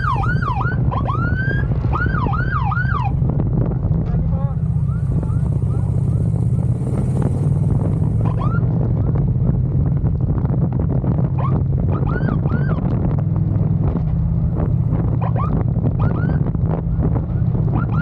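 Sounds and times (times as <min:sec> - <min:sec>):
siren chirps: 0:00.0 - 0:03.2, 0:04.7 - 0:06.8, 0:08.2 - 0:08.7
motorcycle engine rumble: 0:00.0 - 0:18.0
wind buffeting microphone: 0:00.0 - 0:18.0.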